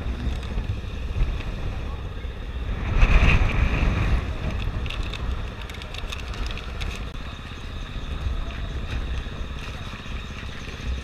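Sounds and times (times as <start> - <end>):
light clicks and rattles: 4.4 - 7.2
dirt bike engine idling: 5.2 - 11.0.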